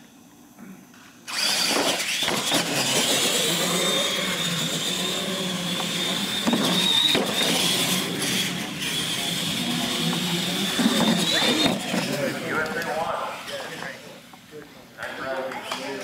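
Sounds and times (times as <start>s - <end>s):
toy truck motors whining: 1.3s - 13.8s.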